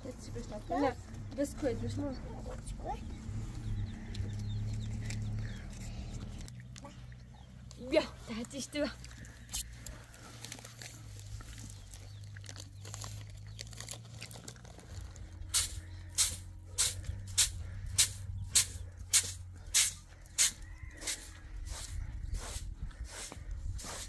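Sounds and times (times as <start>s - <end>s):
broom sweeping cement: 15.5s - 24.0s.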